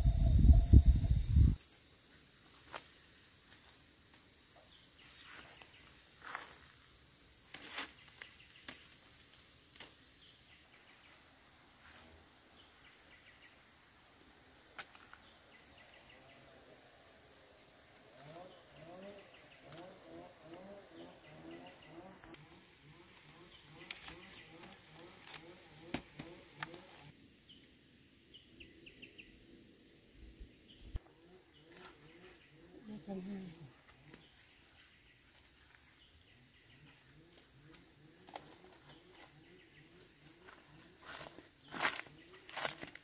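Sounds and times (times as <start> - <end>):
insect trilling high note: 0.0 - 3.8.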